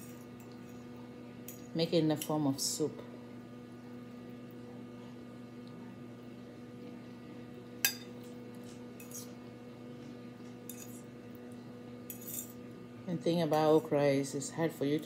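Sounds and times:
steady low hum: 0:00.0 - 0:15.0
metal fork clinking on plate: 0:07.8 - 0:08.1, 0:10.7 - 0:11.1, 0:12.1 - 0:12.6
fork scraping plate: 0:09.0 - 0:09.4.

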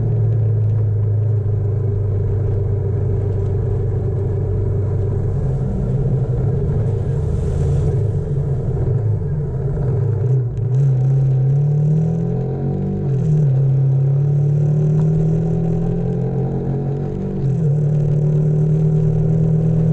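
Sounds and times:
motorcycle engine running: 0:00.0 - 0:10.6.

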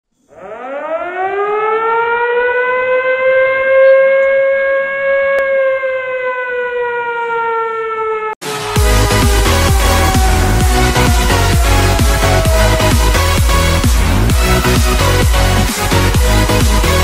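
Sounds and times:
siren wailing: 0:00.2 - 0:17.0
electronic dance music: 0:08.4 - 0:17.0.

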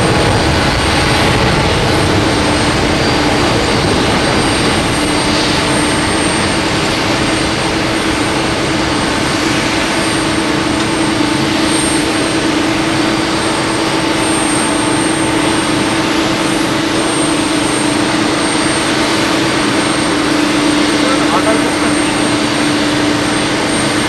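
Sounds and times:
jet engines roaring: 0:00.0 - 0:24.0
low hum: 0:20.2 - 0:23.3.

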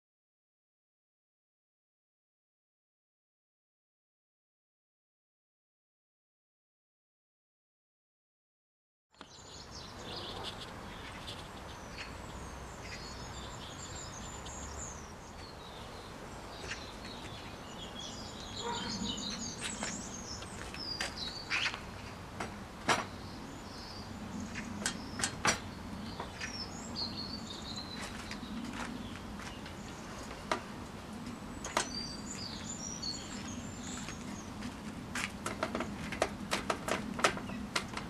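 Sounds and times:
outdoor background noise: 0:09.1 - 0:38.0
birds chirping and singing: 0:09.2 - 0:22.2, 0:22.9 - 0:34.8, 0:35.5 - 0:38.0.

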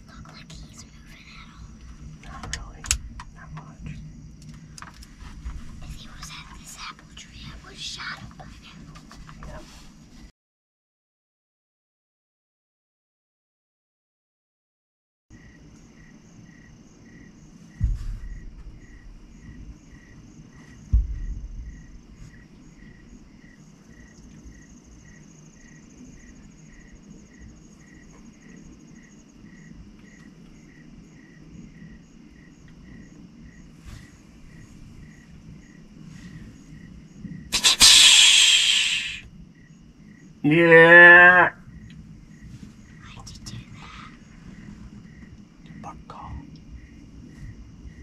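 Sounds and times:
crickets chirping: 0:00.0 - 0:10.3, 0:15.3 - 0:48.0
low background rumble: 0:00.0 - 0:10.3, 0:15.4 - 0:40.6, 0:41.5 - 0:48.0
loud rushing hiss: 0:37.5 - 0:39.3.

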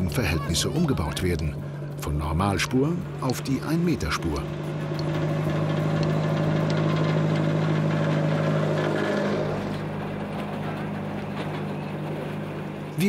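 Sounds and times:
railcar engine humming: 0:00.0 - 0:13.0.

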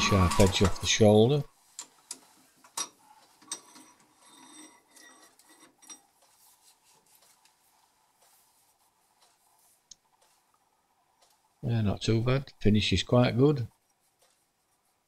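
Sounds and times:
faint handling noise: 0:01.7 - 0:11.6, 0:13.7 - 0:15.0.

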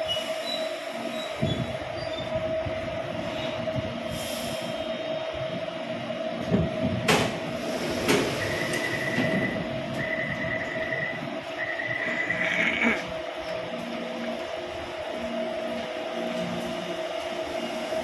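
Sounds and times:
train high whine: 0:00.0 - 0:18.0
electronic door beeping: 0:08.3 - 0:12.8.

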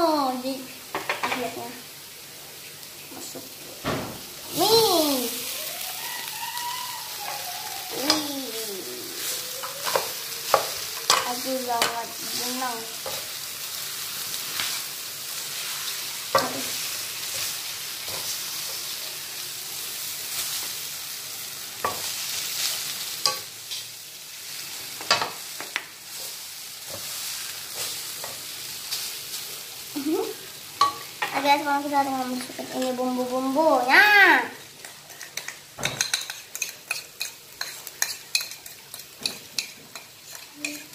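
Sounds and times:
noodles sizzling in a wok: 0:00.0 - 0:40.9
utensil scraping a wok: 0:24.5 - 0:29.6, 0:34.7 - 0:40.9.

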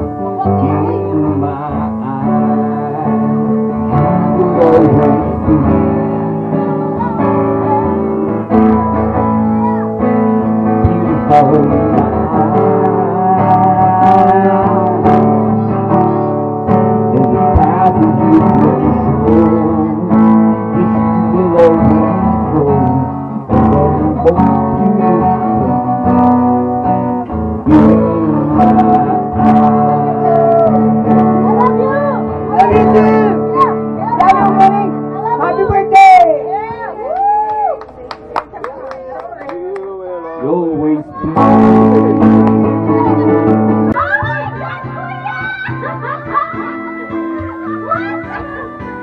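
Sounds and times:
acoustic guitar strumming: 0:00.0 - 0:37.1, 0:40.3 - 0:49.0.

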